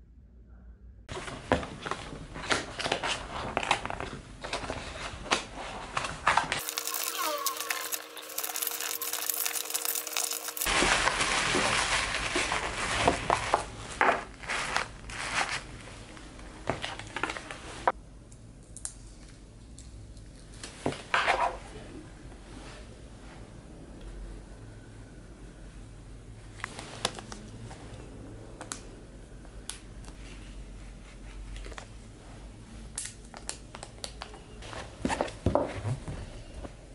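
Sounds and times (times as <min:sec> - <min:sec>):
paper and tissue rustling: 0:01.1 - 0:18.0.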